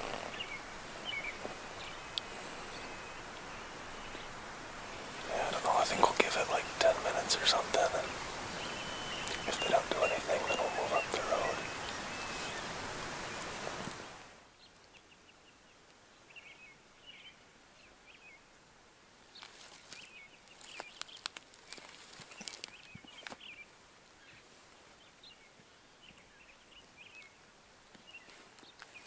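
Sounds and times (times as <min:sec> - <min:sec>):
faint small-bird chirps: 0:05.4 - 0:12.7
sharp crackles and clicks: 0:20.6 - 0:23.4.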